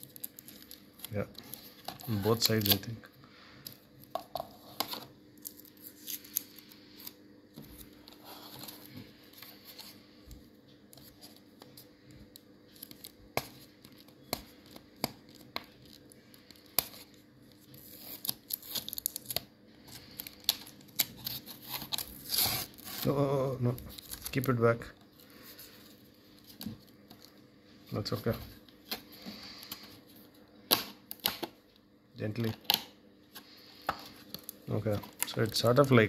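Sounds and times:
stiff plastic crinkling and clicking: 0.0s - 3.0s
tape peeling off plastic: 17.7s - 24.5s.

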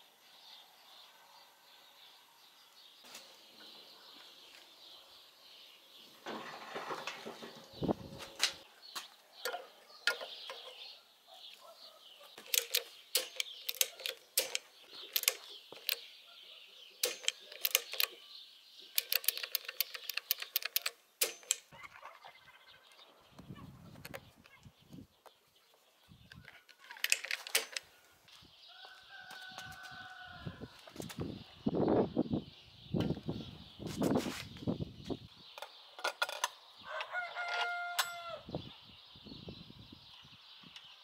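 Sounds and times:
faint birds chirping: 0.0s - 41.0s
handling noise: 6.2s - 16.1s, 17.0s - 18.2s, 26.3s - 28.0s
contactor clicking: 12.4s - 16.0s, 17.0s - 18.2s, 18.9s - 21.7s.

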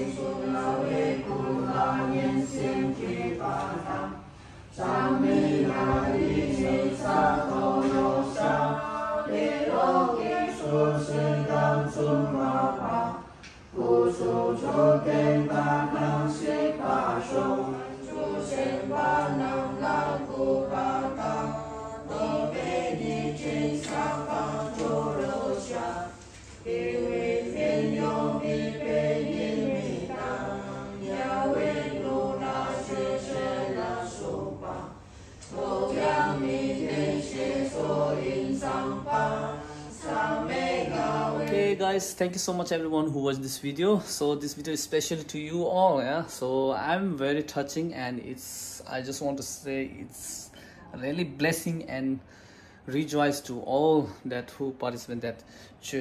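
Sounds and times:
group chanting in unison: 0.0s - 41.9s.

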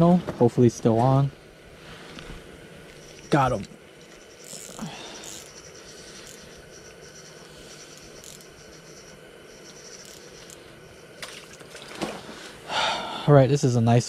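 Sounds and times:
fishing reel ticking: 4.0s - 11.0s.

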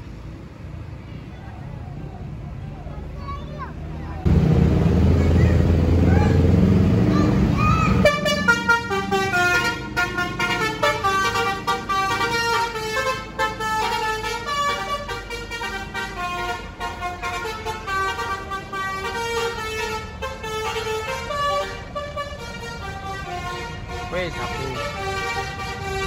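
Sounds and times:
bus musical horn tune: 8.0s - 26.0s.

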